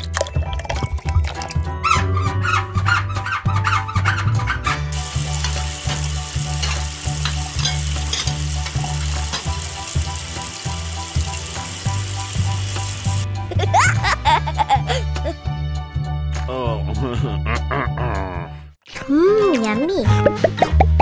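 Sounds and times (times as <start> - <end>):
tap water running into pan: 4.9 - 13.3.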